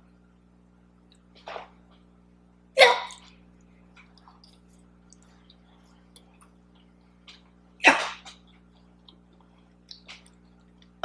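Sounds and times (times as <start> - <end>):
person chewing a cookie: 4.0 - 7.5, 8.3 - 11.0.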